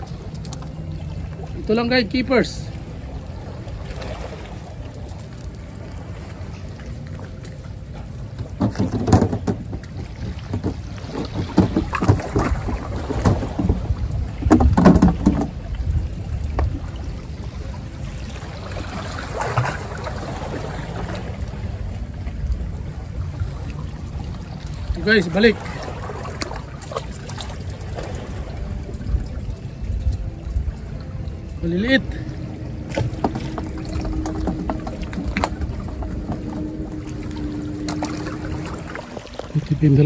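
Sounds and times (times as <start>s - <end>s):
wind rumble on microphone: 0.0s - 40.0s
handling knocks and rustles: 8.4s - 13.8s.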